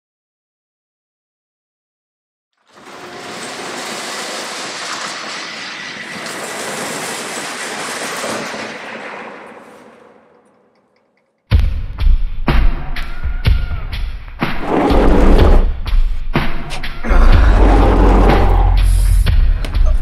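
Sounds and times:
rattling clattering mechanical noise: 0:02.6 - 0:11.3.

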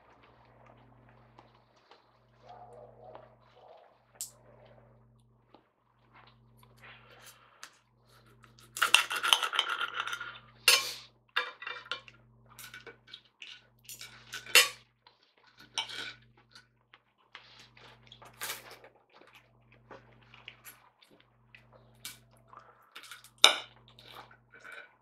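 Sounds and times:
knife and fork scraping plate: 0:15.6 - 0:16.2.

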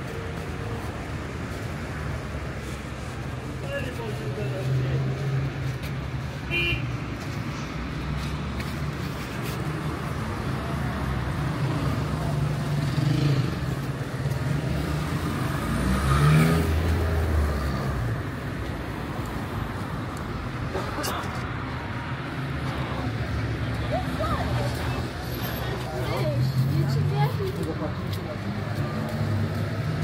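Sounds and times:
cars driving along street: 0:00.0 - 0:30.0
vehicle accelerating past: 0:14.6 - 0:18.0.

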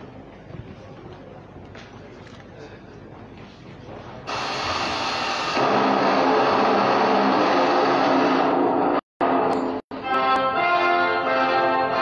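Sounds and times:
hiss: 0:04.3 - 0:06.4.

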